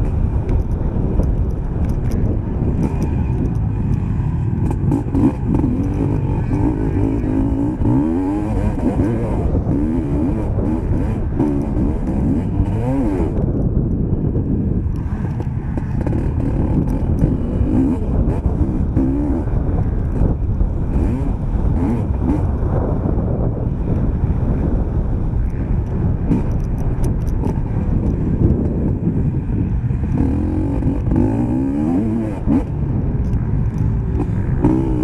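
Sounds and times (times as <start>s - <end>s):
motocross bike engine revving: 2.7s - 13.6s, 15.7s - 22.6s, 29.7s - 32.8s, 33.4s - 35.0s.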